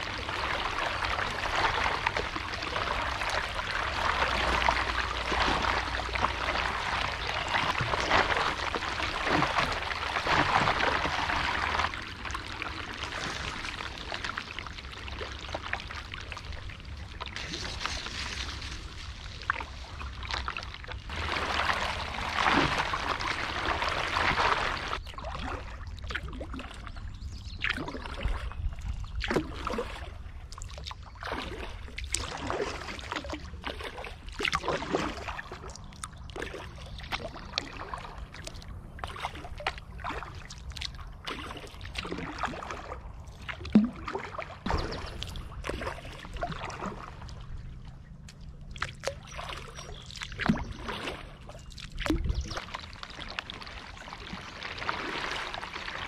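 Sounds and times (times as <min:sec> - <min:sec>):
paddle strokes splashing in water: 0:00.0 - 0:27.0, 0:27.6 - 0:56.0
steady low rumble: 0:42.8 - 0:49.8.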